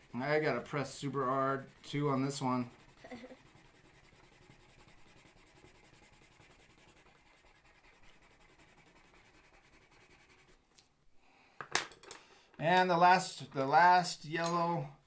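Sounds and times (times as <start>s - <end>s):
colored pencil scratching on paper: 0.0s - 10.6s.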